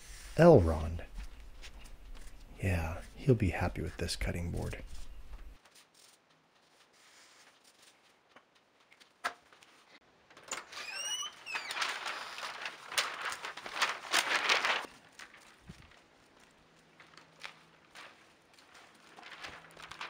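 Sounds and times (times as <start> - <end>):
door squeaking open: 10.5 - 12.4.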